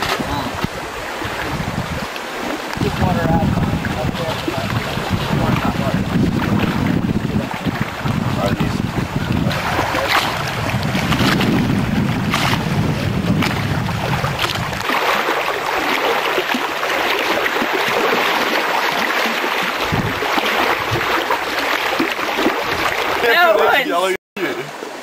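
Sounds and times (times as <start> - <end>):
wind rushing: 0.0 - 2.1, 2.7 - 14.9, 19.8 - 21.2
wind buffeting microphone: 0.0 - 14.9, 19.8 - 21.6
lake waves: 0.0 - 25.0.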